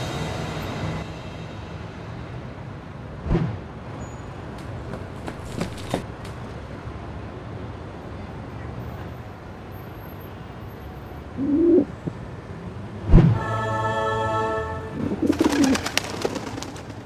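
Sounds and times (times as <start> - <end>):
pigeon cooing: 11.4 - 11.9, 15.0 - 16.2.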